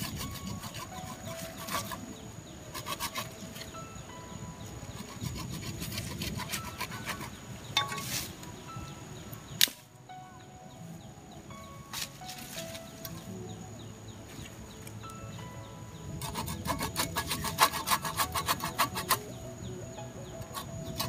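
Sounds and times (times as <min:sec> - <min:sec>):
machete scraping and chopping root: 0:00.0 - 0:02.1, 0:02.7 - 0:03.8, 0:04.9 - 0:08.5, 0:16.2 - 0:19.3.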